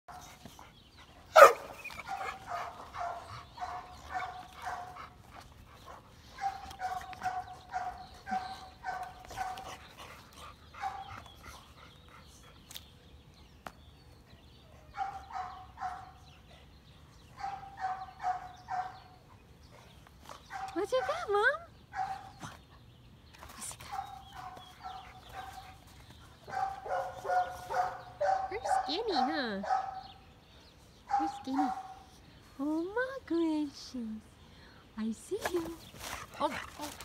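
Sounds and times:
dog barking: 1.4s - 4.9s, 26.5s - 30.1s.

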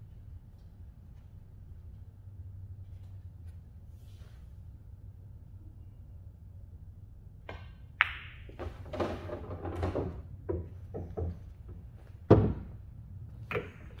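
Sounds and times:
cue handling knocks: 7.5s - 12.8s
pool balls clacking: 7.5s - 12.8s.

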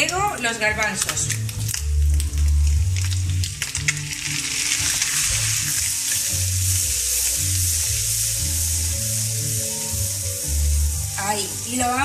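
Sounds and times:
chickpeas sizzling in a frying pan: 0.0s - 12.0s.

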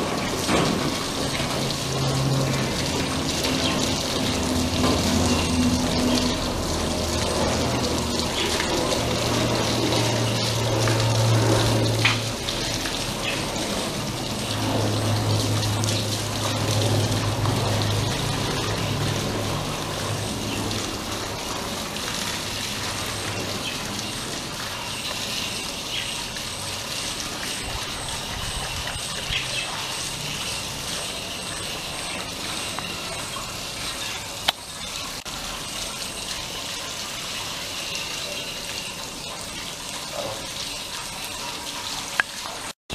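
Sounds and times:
hose water splashing on dog: 0.0s - 42.8s
low hum: 1.2s - 25.7s.

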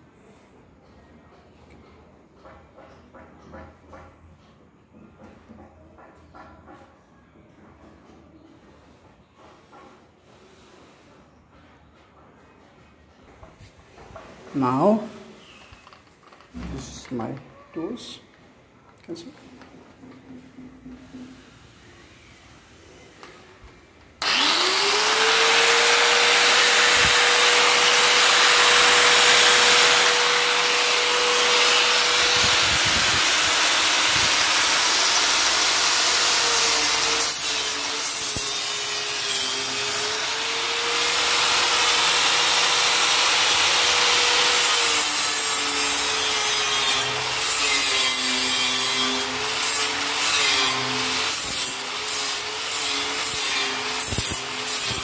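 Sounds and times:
angle grinder motor whine: 24.2s - 45.2s.

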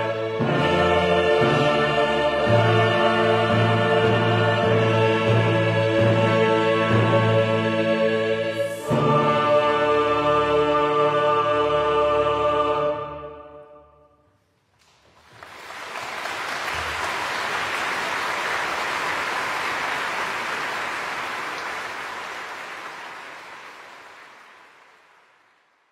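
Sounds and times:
choir holding a chord: 0.0s - 14.2s
audience applause: 14.9s - 25.4s.

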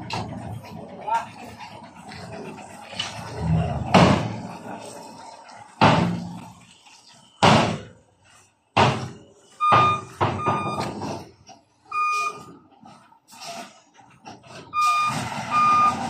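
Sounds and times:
truck bed clanking: 0.0s - 6.7s, 8.8s - 16.0s
reversing alarm beeping: 4.9s - 12.8s, 14.6s - 16.0s.

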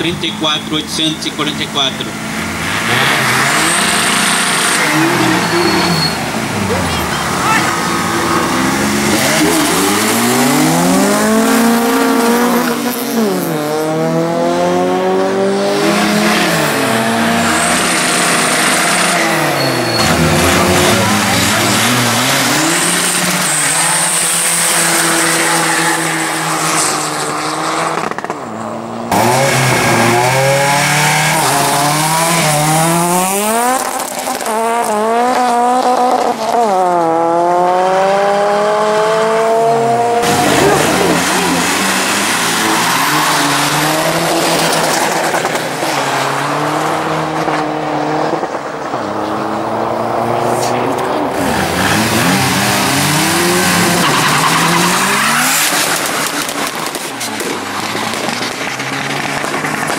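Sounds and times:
car engines revving: 0.0s - 59.9s
tyre squeal: 2.9s - 8.3s, 16.4s - 27.6s.

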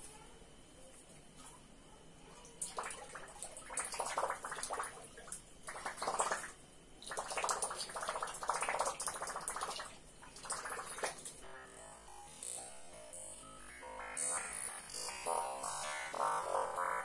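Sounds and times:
water splashing in a tank: 2.3s - 11.4s.

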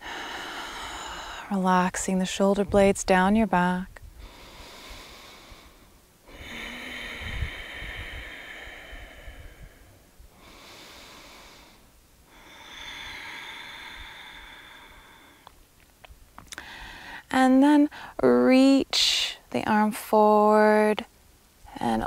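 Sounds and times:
woman breathing slowly and deeply: 0.0s - 1.6s, 4.1s - 15.6s, 16.5s - 17.3s.

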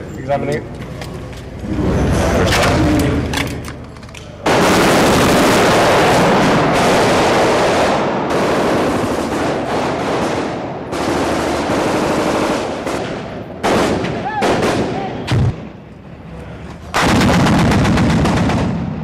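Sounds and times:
machine-gun bursts: 4.5s - 13.0s.

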